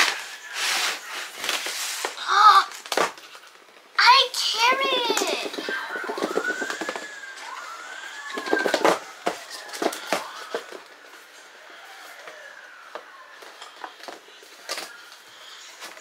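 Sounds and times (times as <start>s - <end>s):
siren wailing: 4.6s - 15.8s.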